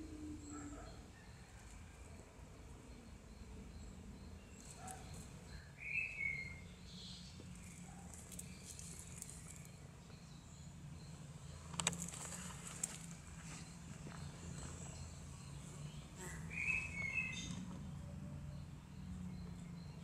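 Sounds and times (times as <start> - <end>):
low steady hum: 0.0 - 20.0
rustling in dry leaves: 7.5 - 9.8, 11.8 - 13.9.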